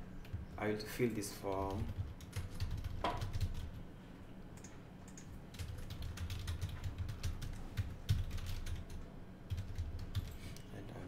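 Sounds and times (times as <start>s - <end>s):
computer keyboard typing: 0.2s - 3.8s, 4.6s - 10.6s.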